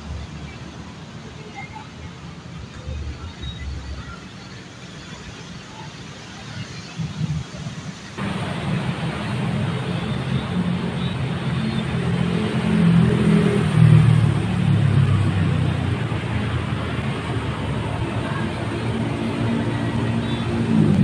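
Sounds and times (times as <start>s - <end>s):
street traffic: 0.0s - 21.0s
motor vehicle engine: 8.2s - 21.0s.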